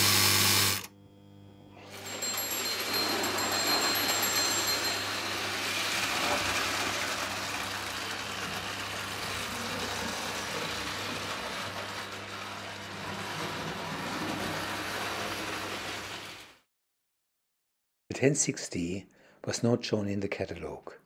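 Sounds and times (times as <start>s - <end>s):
model train rolling on track: 1.9s - 16.6s.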